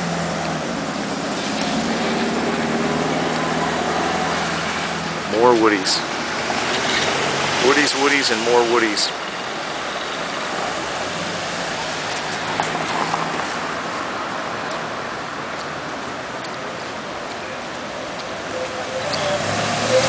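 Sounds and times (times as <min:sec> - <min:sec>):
cars passing slowly: 0:00.0 - 0:20.0
tyres hissing: 0:00.5 - 0:14.0.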